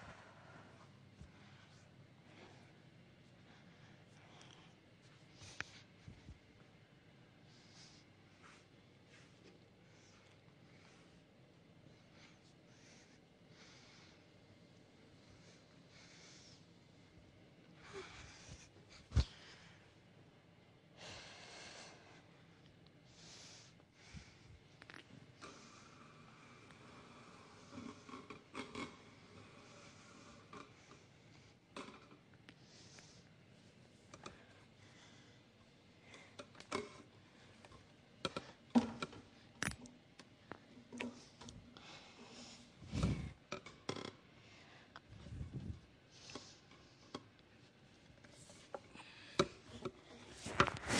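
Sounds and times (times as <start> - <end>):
person breathing softly: 0.0 - 6.3, 7.4 - 14.5, 15.1 - 20.1, 20.9 - 37.7, 41.0 - 43.4.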